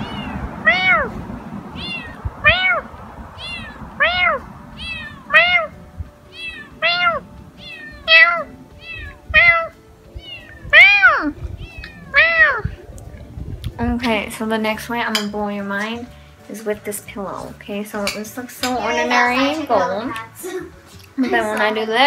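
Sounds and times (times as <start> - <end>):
cat meowing: 0.0 - 1.1, 1.7 - 12.9
person imitating cat meows: 6.4 - 7.2, 8.0 - 12.7.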